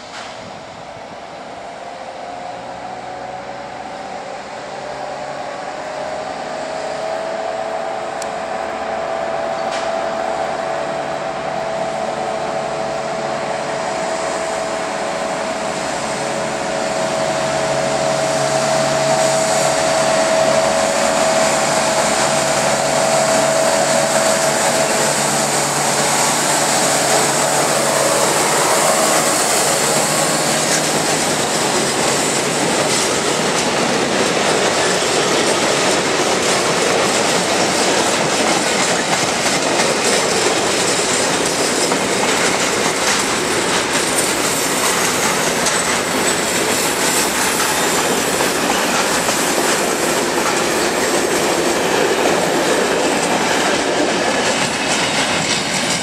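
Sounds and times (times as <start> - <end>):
diesel locomotive engine whining: 0.0 - 56.0.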